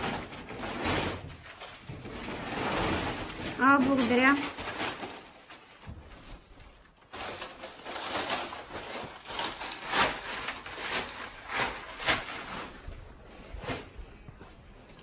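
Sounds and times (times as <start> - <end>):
plastic bags rustling: 0.0 - 15.0.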